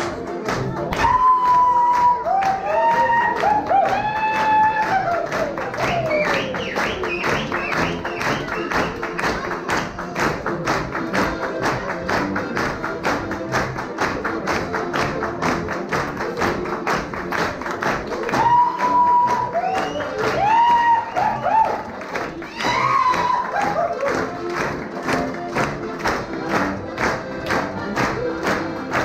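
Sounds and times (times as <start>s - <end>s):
folk dance band with accordion and brass: 0.0s - 29.0s.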